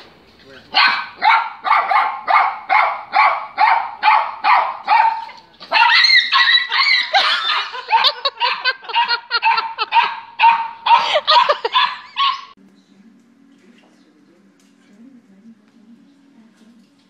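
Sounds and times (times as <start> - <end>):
small dog barking: 0.7 - 12.5.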